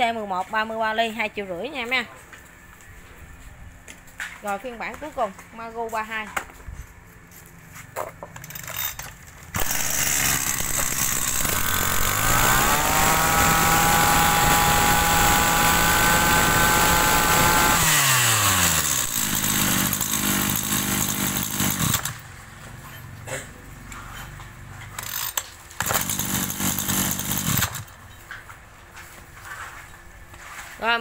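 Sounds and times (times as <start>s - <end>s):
brush cutter engine revving: 9.5s - 22.2s, 25.8s - 27.9s.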